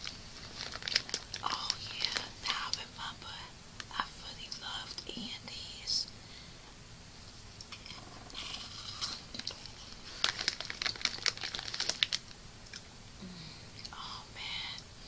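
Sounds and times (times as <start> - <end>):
plastic packaging crinkling: 0.0 - 2.8, 7.7 - 12.4.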